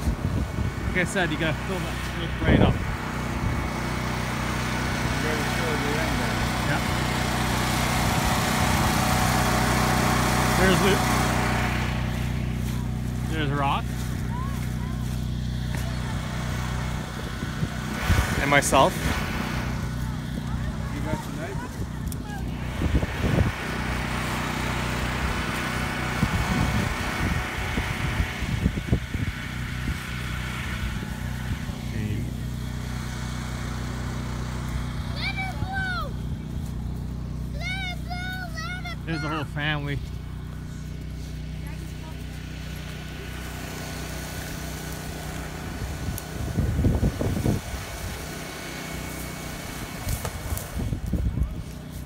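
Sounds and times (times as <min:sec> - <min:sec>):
wind buffeting microphone: 0:00.0 - 0:03.8, 0:17.0 - 0:23.7, 0:26.1 - 0:31.9, 0:45.7 - 0:48.3, 0:50.0 - 0:51.8
small gasoline engine running: 0:00.0 - 0:52.0.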